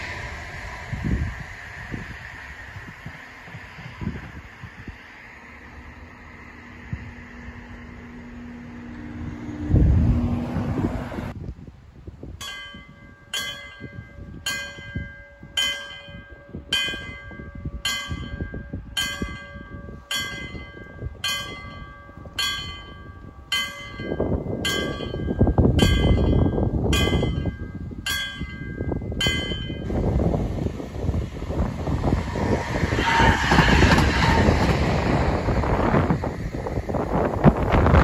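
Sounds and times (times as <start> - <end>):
low rushing noise: 0.0 - 38.0
level crossing warning bell: 12.4 - 30.0.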